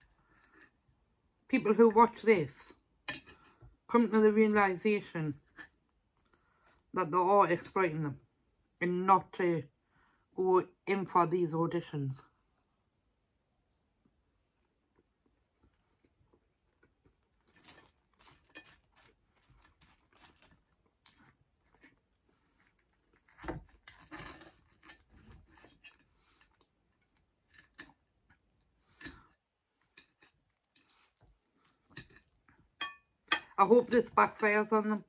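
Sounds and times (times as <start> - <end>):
quiet chewing: 14.5 - 32.8.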